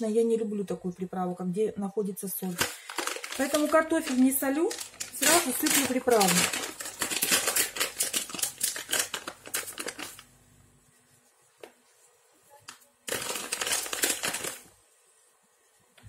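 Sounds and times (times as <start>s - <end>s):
seasoning sachet crinkling: 2.4s - 10.3s, 12.4s - 14.8s.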